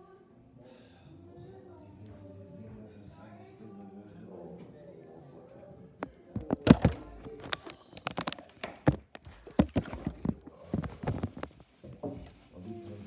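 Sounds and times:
phone handling knocks and rubs: 6.0 - 12.0.

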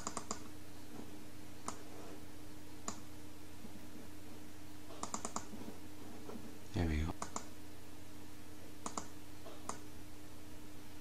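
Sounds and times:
computer mouse clicking: 0.0 - 0.5, 1.6 - 1.9, 2.8 - 3.1, 4.9 - 5.6, 7.2 - 7.5, 8.8 - 9.9
faint low hum: 0.0 - 11.0.

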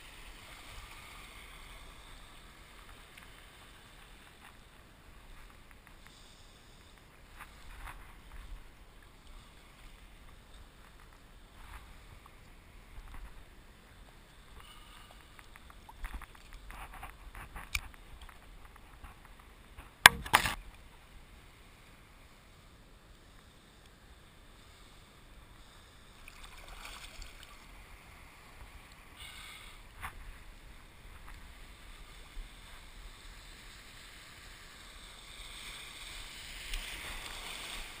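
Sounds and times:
faint clicks: 2.8 - 4.6, 14.3 - 20.8
sharp splash or knock: 20.0 - 20.6.

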